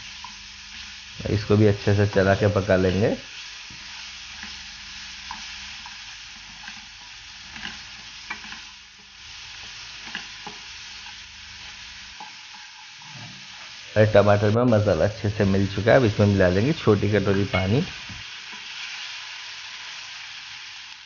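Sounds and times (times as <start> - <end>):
food sizzling in oil: 0.0 - 21.0
spatula scraping a pan: 5.3 - 8.7, 12.2 - 13.8.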